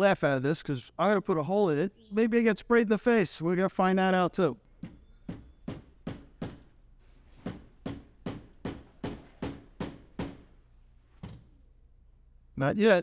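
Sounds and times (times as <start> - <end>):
hammer striking nail on pipe: 4.8 - 6.7, 7.4 - 10.6.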